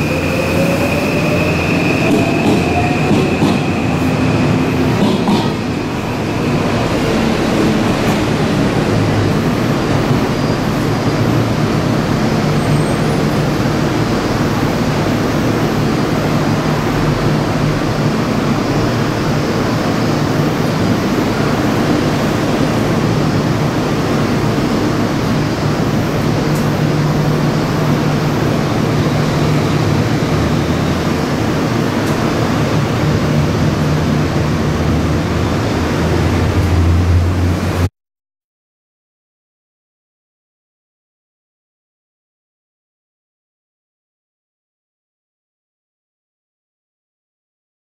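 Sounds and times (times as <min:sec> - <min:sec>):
road noise: 0:00.0 - 0:37.9.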